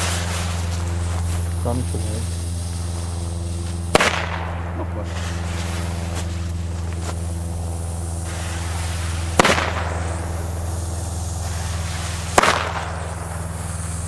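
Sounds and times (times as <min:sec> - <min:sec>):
steady low hum: 0:00.0 - 0:14.0
firecracker bangs: 0:02.6 - 0:06.2, 0:08.2 - 0:14.0.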